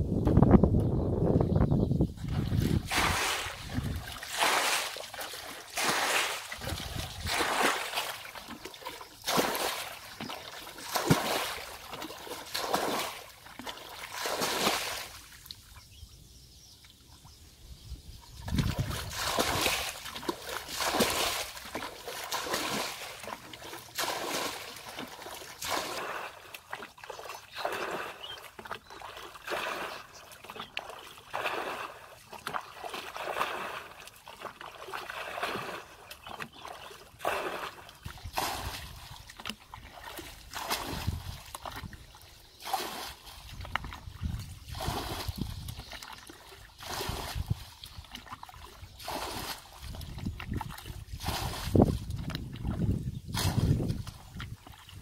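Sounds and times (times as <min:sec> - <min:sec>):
water splashing from bucket: 0:02.2 - 0:15.6, 0:18.4 - 0:55.0.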